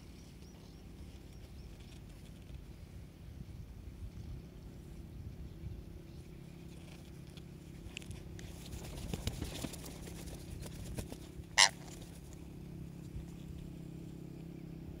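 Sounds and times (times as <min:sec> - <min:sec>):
low steady hum: 0:00.0 - 0:15.0
rustles and wing flaps: 0:01.0 - 0:02.8, 0:06.4 - 0:13.7
parakeet squawk: 0:11.6 - 0:11.8.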